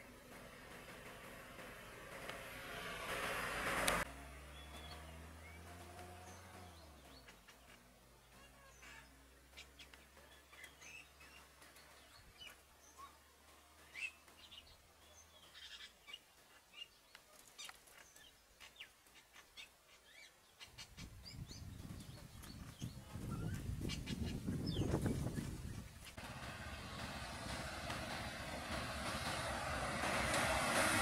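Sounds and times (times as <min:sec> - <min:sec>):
low rumble: 0:00.0 - 0:04.2, 0:24.8 - 0:31.0
idling vehicle engine hum: 0:00.0 - 0:12.2, 0:26.1 - 0:31.0.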